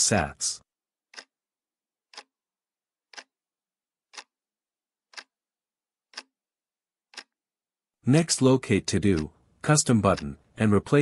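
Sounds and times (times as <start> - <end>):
clock-like ticking: 1.1 - 1.4, 2.1 - 2.4, 3.0 - 4.4, 5.0 - 5.4, 6.0 - 6.4, 7.1 - 7.4, 8.2 - 11.0.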